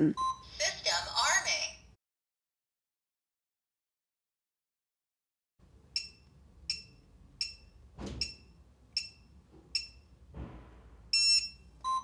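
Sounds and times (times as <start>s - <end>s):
keypad beeps: 0.2s - 0.5s, 6.0s - 10.0s, 11.1s - 12.0s.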